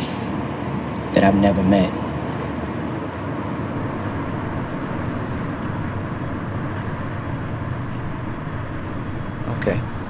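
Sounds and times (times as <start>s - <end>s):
distant traffic rumble: 0.0s - 10.0s
faint hum: 0.0s - 10.0s.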